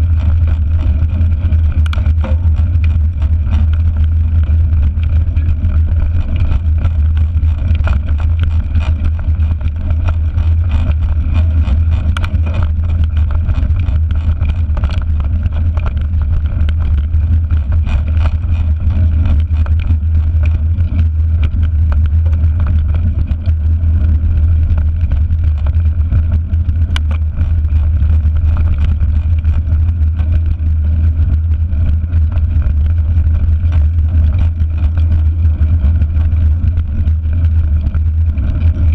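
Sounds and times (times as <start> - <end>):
bike tyres rumbling on gravel: 0.0 - 38.9
small clicks and rattles: 0.0 - 38.9.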